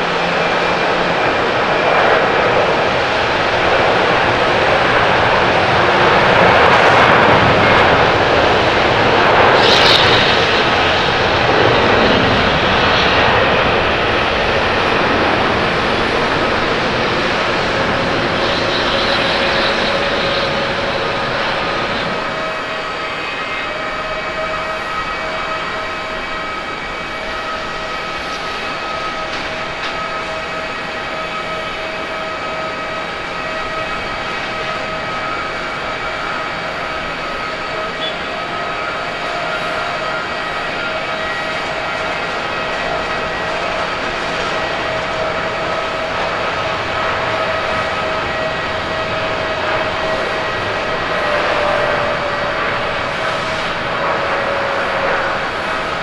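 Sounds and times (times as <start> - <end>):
jet engines on runway: 0.0 - 56.0
jet engines roaring at takeoff: 0.0 - 56.0.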